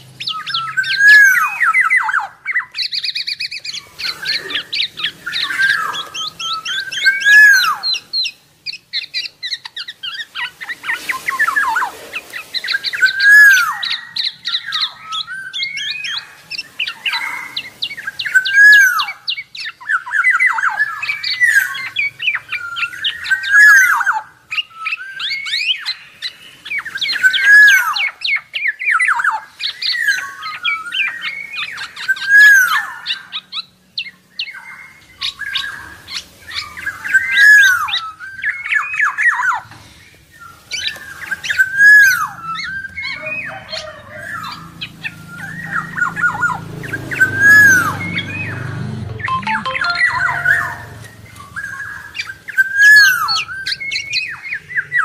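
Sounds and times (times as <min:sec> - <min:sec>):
bird calling: 0:00.0 - 0:55.0
bird chattering notes: 0:47.2 - 0:51.5.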